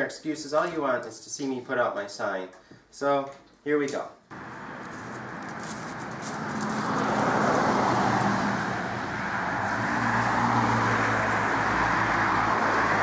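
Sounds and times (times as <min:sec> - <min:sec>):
cars passing: 0:04.3 - 0:13.0.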